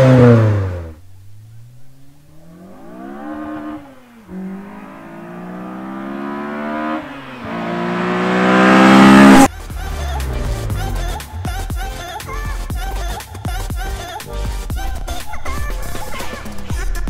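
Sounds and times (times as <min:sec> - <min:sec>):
car engine accelerating: 0:00.0 - 0:13.2.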